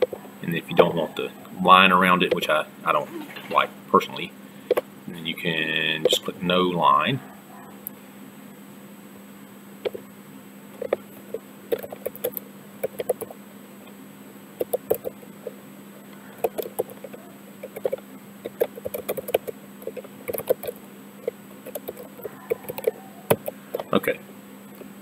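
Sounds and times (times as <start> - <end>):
keyboard typing: 11.7 - 13.4, 14.6 - 15.6, 16.4 - 24.0.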